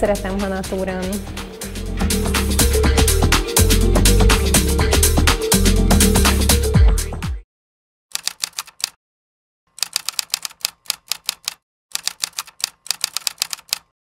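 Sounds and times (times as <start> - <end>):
typewriter keystroke clicks: 8.1 - 9.0, 9.8 - 13.9.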